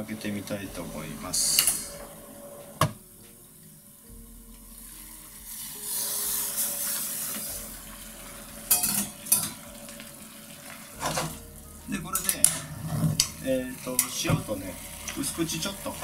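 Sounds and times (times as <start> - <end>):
broth bubbling and hissing: 0.0 - 2.8, 3.5 - 16.0
metal pan lid clinking: 8.7 - 9.6.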